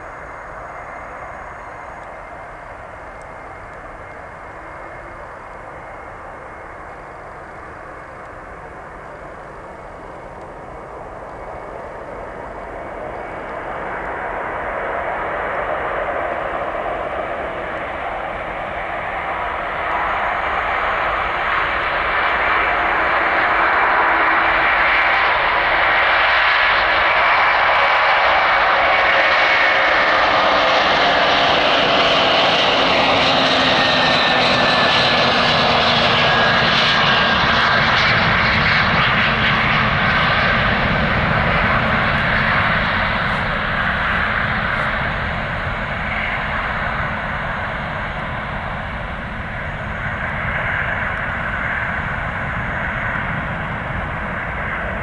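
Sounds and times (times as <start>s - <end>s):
jet engines roaring on take-off: 0.0s - 55.0s.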